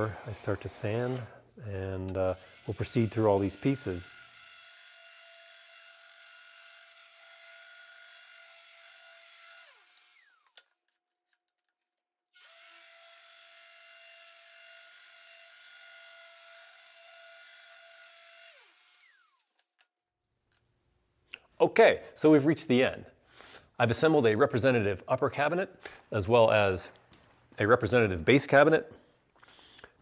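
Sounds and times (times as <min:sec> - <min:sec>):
orbital sander whining: 0:02.3 - 0:04.9.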